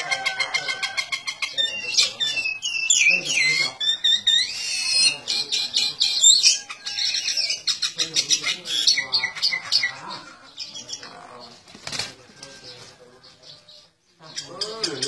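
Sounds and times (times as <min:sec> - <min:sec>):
birds chirping and squawking: 0:00.0 - 0:15.0
wings flapping: 0:11.6 - 0:12.9.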